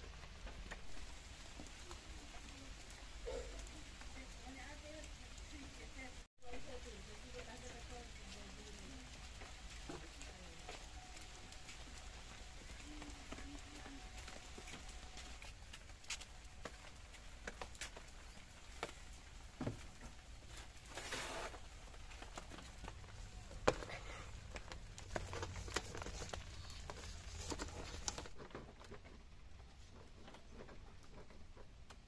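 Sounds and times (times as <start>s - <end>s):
sandalled footsteps on wet ground: 6.8s - 28.3s.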